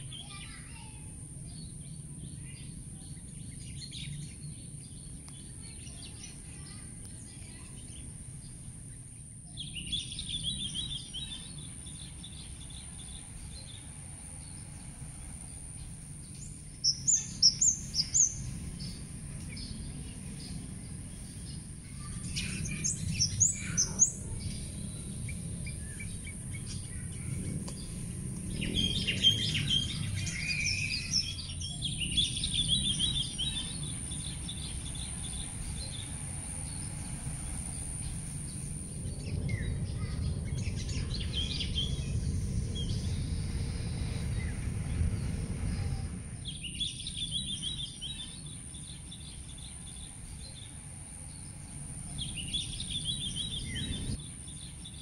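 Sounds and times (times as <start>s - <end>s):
low outdoor rumble: 0.0s - 55.0s
small birds chirping: 0.0s - 55.0s
high-pitched hiss: 3.7s - 39.6s.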